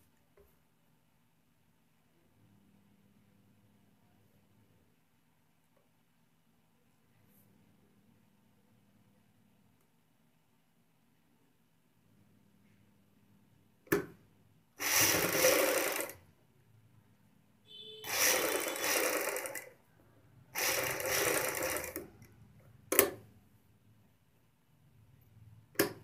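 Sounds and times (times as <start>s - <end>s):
sewing machine stitching: 14.8s - 16.2s, 18.0s - 19.8s, 20.5s - 22.2s.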